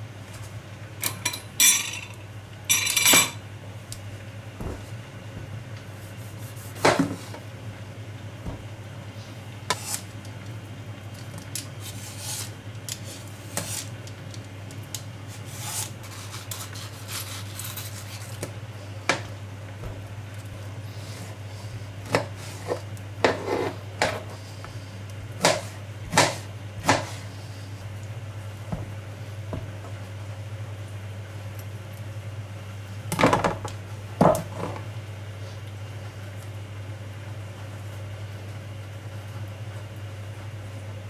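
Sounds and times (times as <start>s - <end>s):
knife tapping and scraping board: 22.0s - 24.3s, 25.4s - 27.2s.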